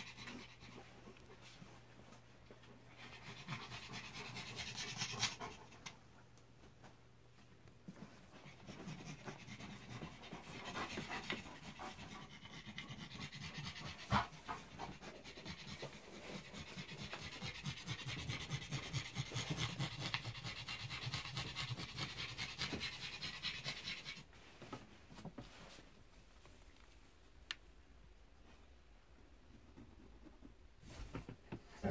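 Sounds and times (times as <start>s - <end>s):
dog panting: 2.6s - 6.0s, 7.9s - 24.3s.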